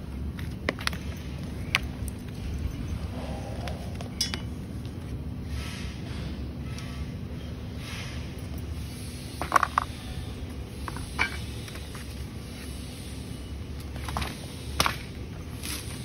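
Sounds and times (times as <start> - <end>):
steady low rumble: 0.0 - 16.0
metallic clinks and knocks: 4.0 - 4.5.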